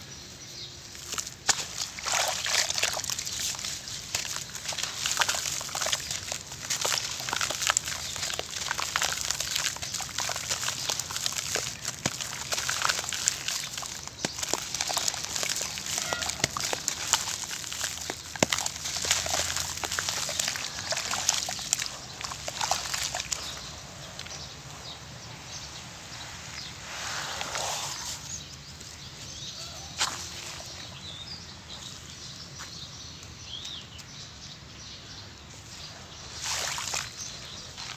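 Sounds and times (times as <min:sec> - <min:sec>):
grit crackling: 0:01.0 - 0:24.5
wet paste squelching: 0:01.0 - 0:24.7, 0:36.3 - 0:37.9.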